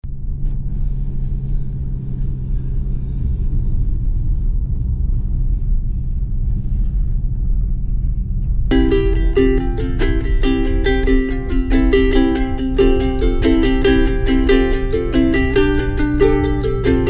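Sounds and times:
car interior engine and tyre rumble: 0.1s - 17.0s.

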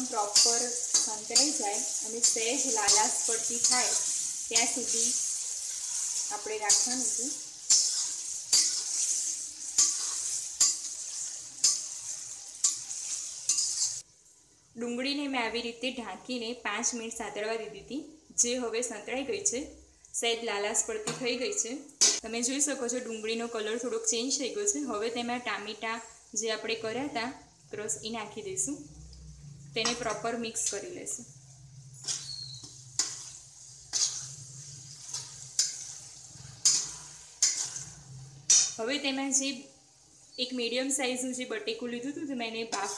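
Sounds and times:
metal spatula scraping a pan: 0.0s - 14.0s, 21.0s - 22.2s, 29.3s - 39.0s, 42.6s - 42.9s
onions sizzling in oil: 0.0s - 19.6s, 20.6s - 42.9s.

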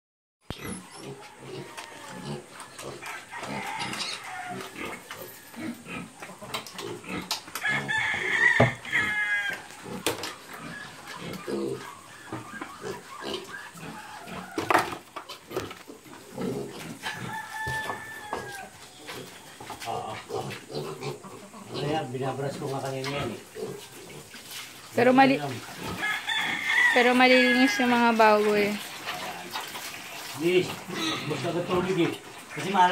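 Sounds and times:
piglets grunting: 0.5s - 22.4s, 30.7s - 32.9s
high drawn-out animal call: 7.6s - 14.9s.

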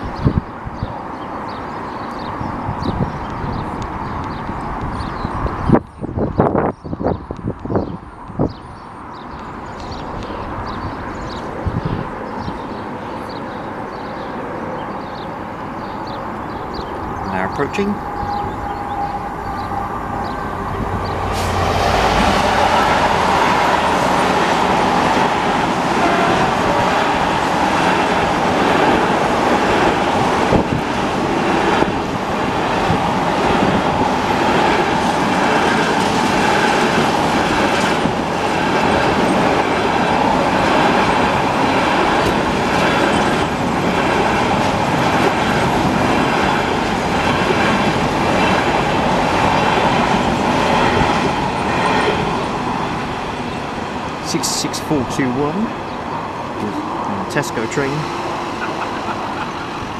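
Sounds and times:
wheels rumbling on rail: 0.0s - 59.9s
clickety-clack over rail joints: 24.0s - 53.0s.

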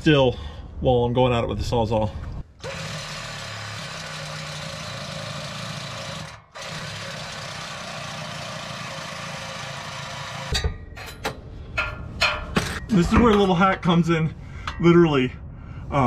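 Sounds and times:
reciprocating saw cutting metal: 2.6s - 10.6s.

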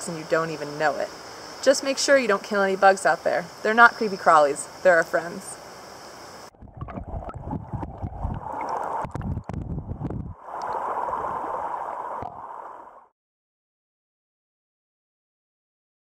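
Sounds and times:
creek water gurgling and splashing: 6.5s - 9.6s, 10.4s - 12.9s.

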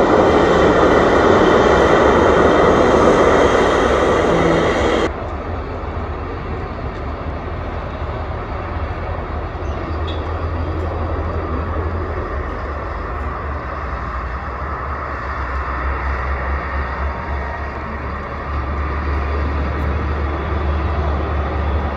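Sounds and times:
towing tractor driving past: 0.0s - 6.8s
jet airliner taxiing: 0.0s - 21.9s.

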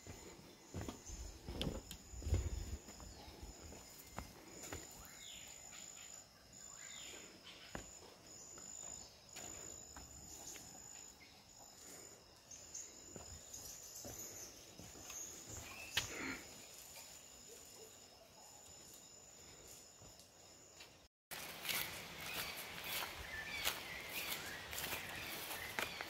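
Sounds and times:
footsteps on wooden boards: 0.0s - 4.9s
insects trilling: 0.0s - 26.0s.

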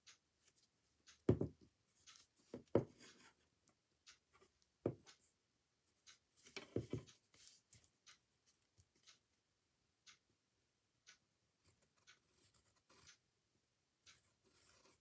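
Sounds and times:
pencil scratching on paper: 11.6s - 13.2s, 14.2s - 15.0s.

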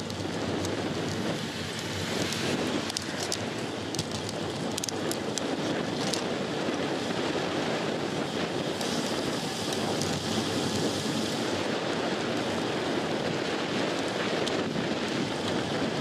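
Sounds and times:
bicycle tyres rolling on pavement: 0.0s - 16.0s
wind rushing over microphone: 0.0s - 16.0s.

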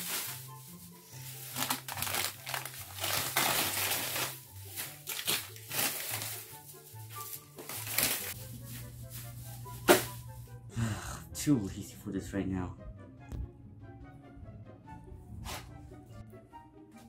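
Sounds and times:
plastic trash bag crinkling: 0.0s - 10.4s
background music with bass line: 8.4s - 17.0s.

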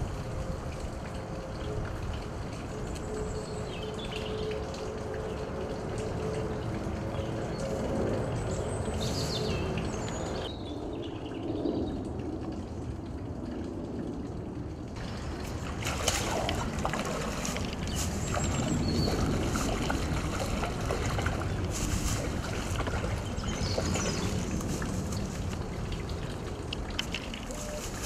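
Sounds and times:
fish splashing in water: 15.0s - 28.0s.

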